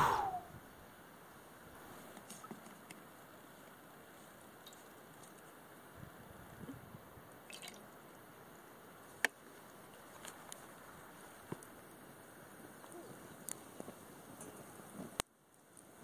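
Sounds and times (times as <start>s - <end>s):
light ticks: 12.8s - 15.9s.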